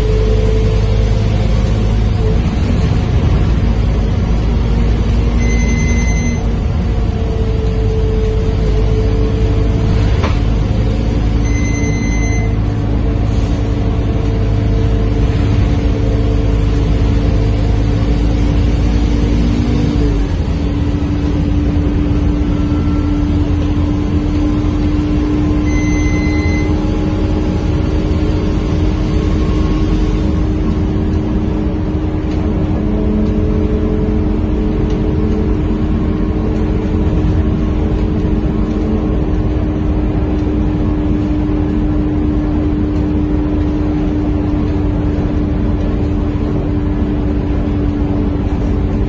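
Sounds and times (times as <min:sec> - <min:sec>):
bus diesel engine rumbling: 0:00.0 - 0:49.0
short electronic beep: 0:05.4 - 0:06.5, 0:11.4 - 0:12.7, 0:25.6 - 0:26.9.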